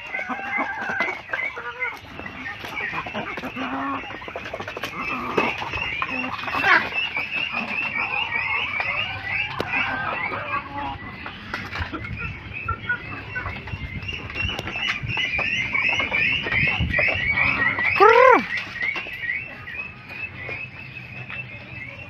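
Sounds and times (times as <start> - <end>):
chickens pecking taps: 0.0 - 22.0.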